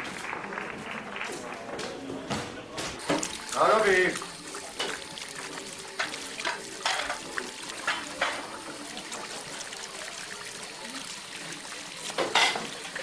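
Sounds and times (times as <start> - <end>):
water running into a sink: 3.0 - 13.0
dishes clinking and clattering: 4.6 - 9.3, 12.0 - 13.0.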